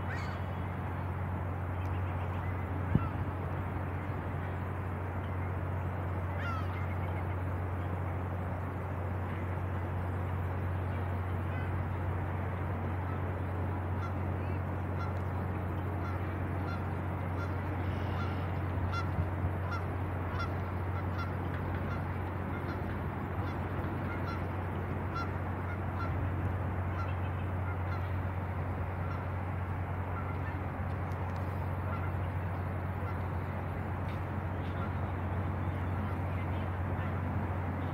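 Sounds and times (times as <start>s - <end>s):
waterfowl honking: 0.0s - 0.6s, 6.3s - 7.2s, 13.9s - 15.3s, 15.9s - 26.2s, 26.8s - 29.4s, 30.0s - 30.6s, 31.6s - 33.8s, 34.6s - 37.2s
boat engines droning: 0.0s - 37.9s.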